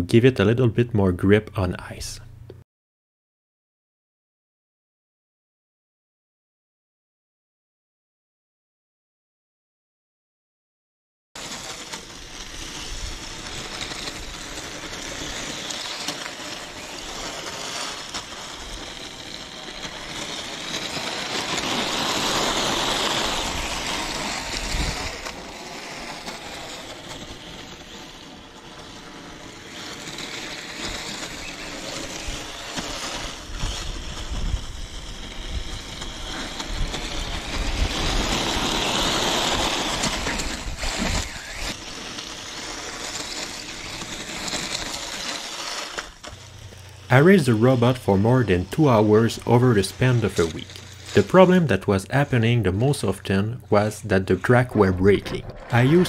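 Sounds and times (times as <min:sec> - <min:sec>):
tracks rushing on snow: 0:11.4 - 0:56.0
electric motors whining: 0:11.8 - 0:47.2.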